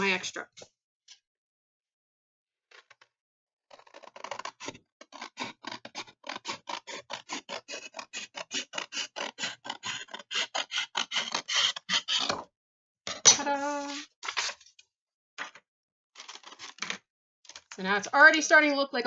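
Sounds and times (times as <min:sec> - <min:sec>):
scissors snipping paper: 0:04.4 - 0:12.4.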